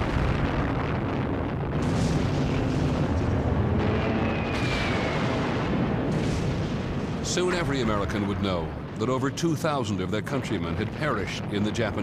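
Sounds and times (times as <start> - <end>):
explosions: 0.0 - 12.0
gunfire: 1.7 - 8.0
faint falling whistle: 4.2 - 5.3.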